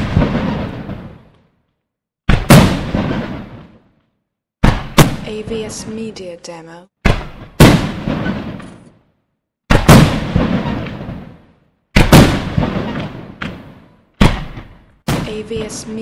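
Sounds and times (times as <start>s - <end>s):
firework bangs with rolling echo: 0.0s - 1.6s, 2.3s - 4.0s, 4.6s - 5.7s, 7.0s - 9.1s, 9.7s - 16.0s.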